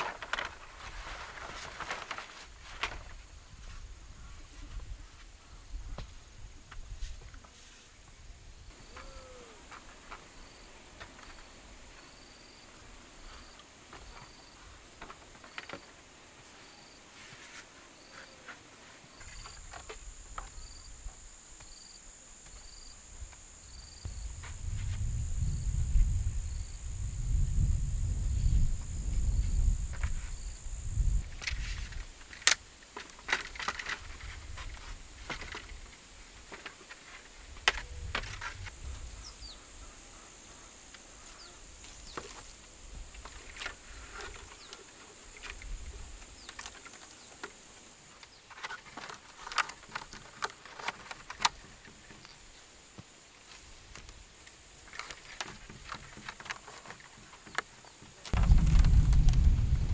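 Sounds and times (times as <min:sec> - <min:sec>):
bamboo poles knocking and clattering: 0:00.0 - 0:03.2, 0:13.9 - 0:16.0, 0:31.3 - 0:38.8, 0:41.8 - 0:52.4, 0:54.8 - 0:59.6
rustling of handled poles: 0:00.0 - 0:08.2, 0:13.2 - 0:20.6, 0:31.3 - 0:39.2, 0:40.9 - 0:52.6, 0:53.4 - 0:59.5
low rumble: 0:58.4 - 0:59.9.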